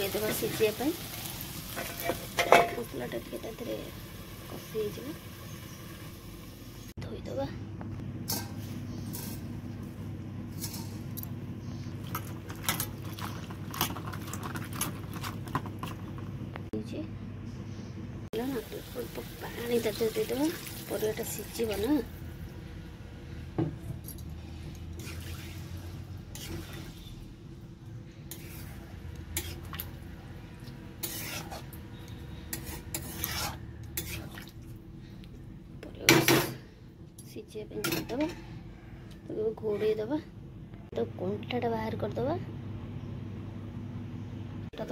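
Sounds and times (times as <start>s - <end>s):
steady low hum: 0.0s - 44.9s
metal spatula scraping a pan: 25.0s - 27.2s, 28.3s - 29.8s, 31.0s - 34.4s.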